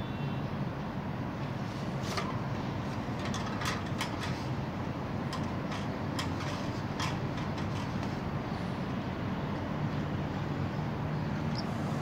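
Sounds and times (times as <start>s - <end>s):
wire birdcage clicking and rattling: 3.2s - 4.5s, 5.2s - 8.2s.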